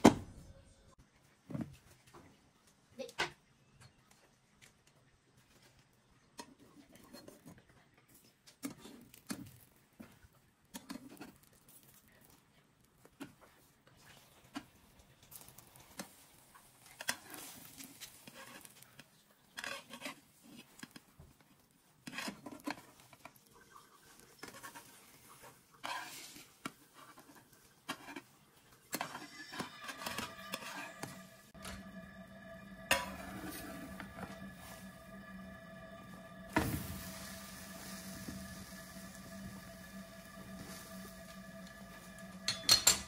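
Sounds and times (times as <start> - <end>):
spatula scraping frying pan: 16.8 - 18.8, 19.6 - 20.8, 24.4 - 28.3, 28.9 - 31.9
soft background music: 29.3 - 43.0.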